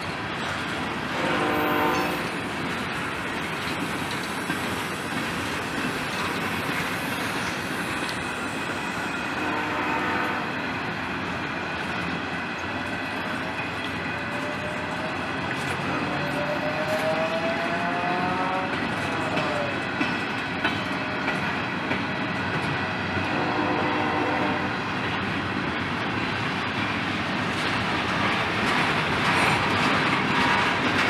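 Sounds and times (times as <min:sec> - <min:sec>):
freight train wheels rumbling: 0:00.0 - 0:31.0
train horn: 0:01.1 - 0:02.4, 0:09.3 - 0:10.6, 0:15.8 - 0:16.8, 0:23.2 - 0:24.8.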